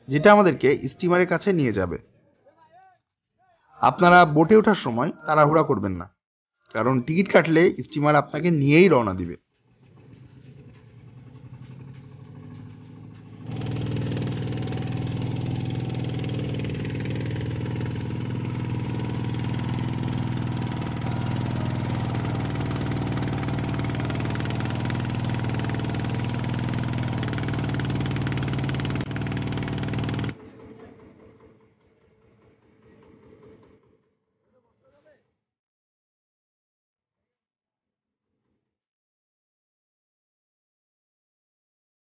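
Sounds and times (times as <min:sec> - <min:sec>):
boat engine running: 0:20.8 - 0:30.4.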